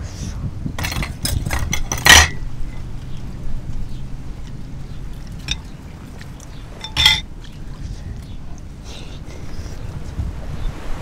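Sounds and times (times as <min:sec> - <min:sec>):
skewer clinking glass bowl: 0:00.8 - 0:02.9, 0:05.3 - 0:05.8, 0:06.7 - 0:07.3.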